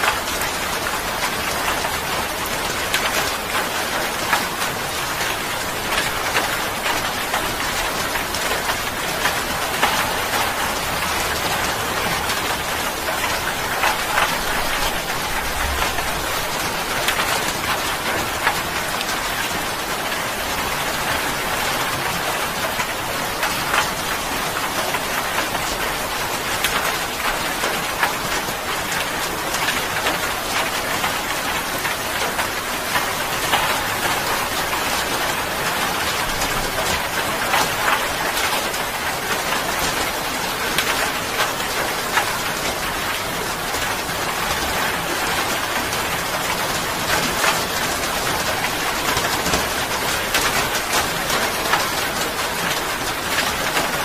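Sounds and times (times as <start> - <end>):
steady rain hiss: 0.0 - 54.0.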